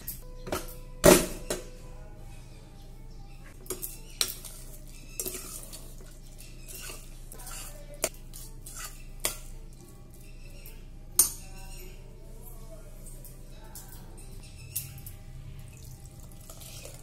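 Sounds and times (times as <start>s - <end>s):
ladle stirring thick pudding: 3.6s - 10.4s.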